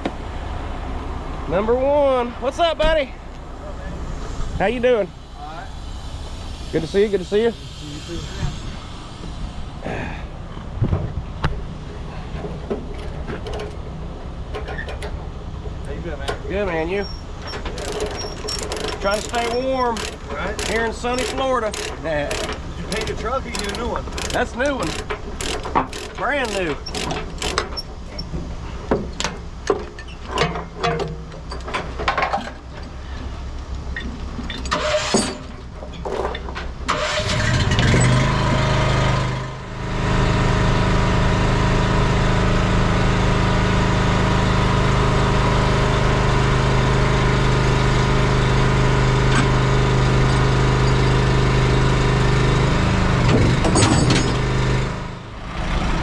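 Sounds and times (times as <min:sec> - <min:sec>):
diesel engine running: 0:00.0 - 0:56.0
metal knocks and clanks: 0:17.4 - 0:32.9, 0:53.2 - 0:54.6.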